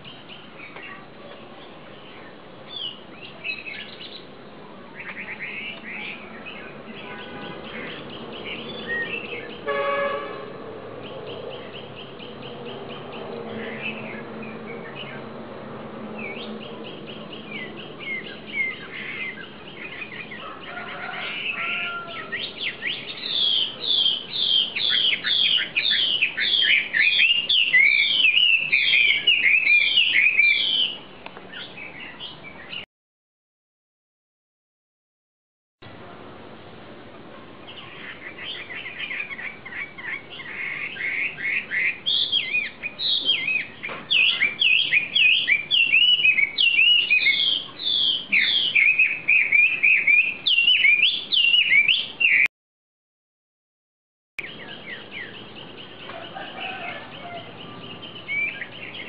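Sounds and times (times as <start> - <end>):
songbird chirps and trills: 0.0 - 32.9, 37.4 - 52.5, 54.4 - 59.0.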